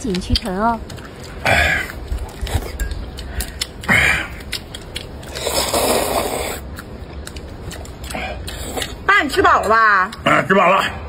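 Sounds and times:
people chewing: 0.0s - 11.0s
chopsticks clicking on bowl: 2.7s - 5.1s.

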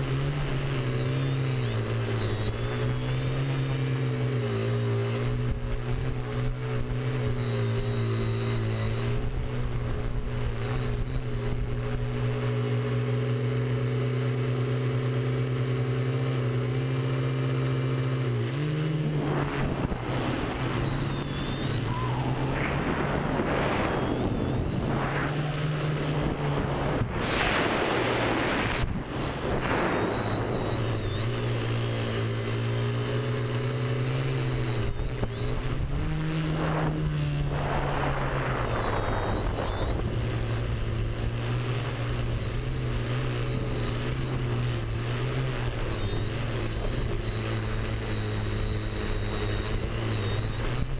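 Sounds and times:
drone motors whining: 0.0s - 50.9s
gusty wind rushing: 19.0s - 32.1s, 35.9s - 41.3s.

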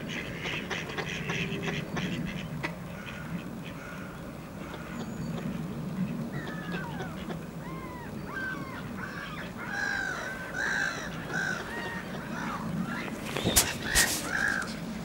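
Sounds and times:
ducks and gulls calling: 0.0s - 14.9s.

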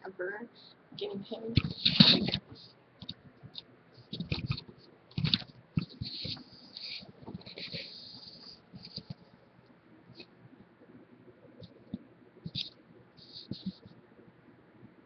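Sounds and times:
rustling: 1.5s - 9.4s
scraping hiss: 5.8s - 9.2s.

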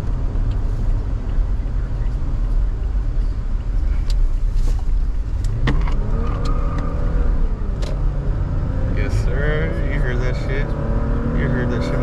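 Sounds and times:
car engine rumble: 0.0s - 12.0s
road noise: 0.0s - 12.0s.

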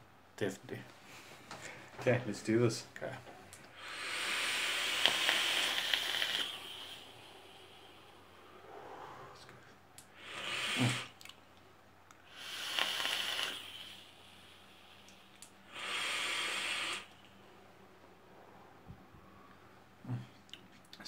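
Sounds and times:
vapour exhaled in breathy hisses: 3.7s - 11.2s, 12.2s - 17.2s.

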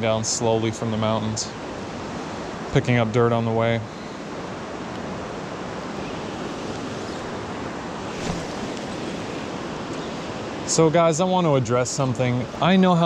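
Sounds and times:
river rushing over rocks: 4.4s - 11.4s.

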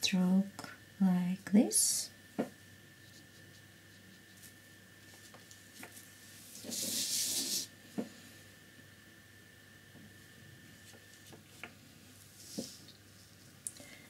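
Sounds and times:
paintbrush swishing on paper: 3.0s - 7.7s, 12.2s - 13.5s.

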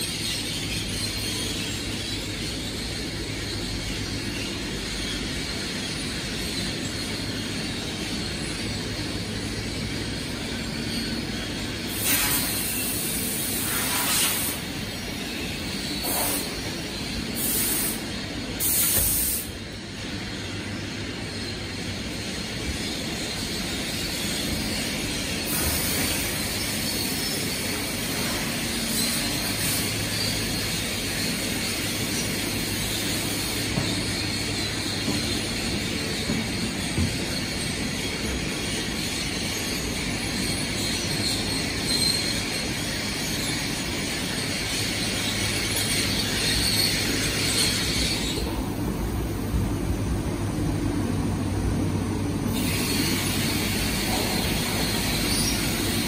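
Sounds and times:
conveyor machine hum: 0.0s - 56.0s
hissing bursts: 11.9s - 14.9s, 16.0s - 19.7s.

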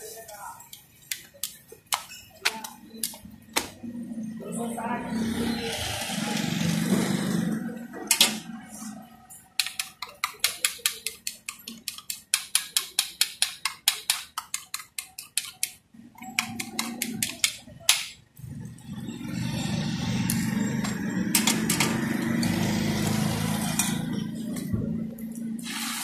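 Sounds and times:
tongs beating egg in steel bowl: 0.6s - 3.2s, 9.4s - 18.2s.

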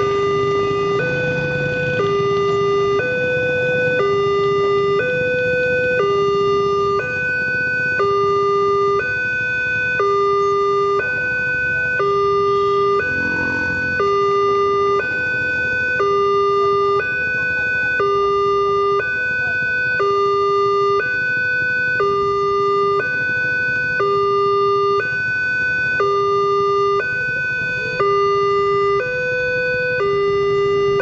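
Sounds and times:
level crossing alarm two tones: 12.0s - 17.0s.

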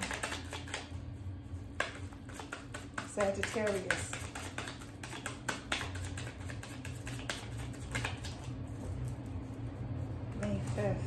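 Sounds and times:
cards being shuffled: 0.0s - 0.9s, 1.7s - 8.6s.

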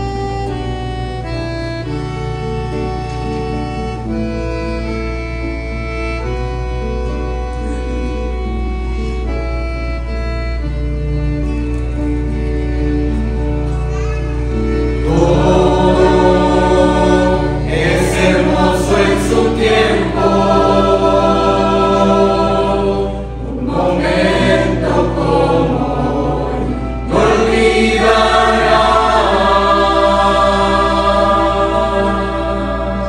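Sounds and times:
acoustic guitar: 0.0s - 33.0s
choir singing a hymn: 14.6s - 33.0s.

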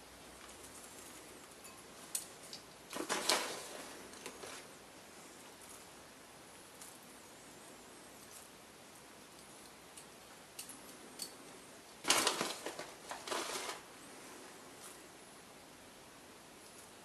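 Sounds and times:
plastic bag crinkling: 2.9s - 4.7s, 12.0s - 13.9s.

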